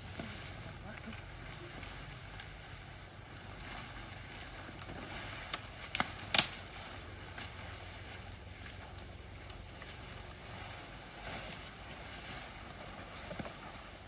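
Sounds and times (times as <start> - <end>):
dry undergrowth rustling: 0.0 - 14.0
twig snaps: 4.2 - 6.7.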